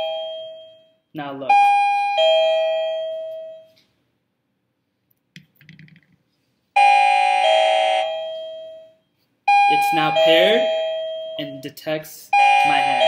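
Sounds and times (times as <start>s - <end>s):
doorbell ding-dong chime: 0.0s - 3.8s, 6.8s - 11.6s, 12.4s - 13.0s.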